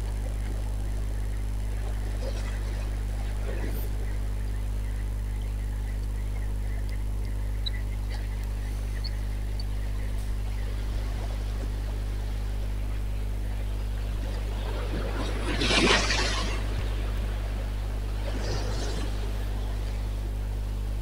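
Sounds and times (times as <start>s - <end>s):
wind: 0.0s - 21.0s
faint high ticks: 5.3s - 10.4s
sea surf: 9.9s - 21.0s.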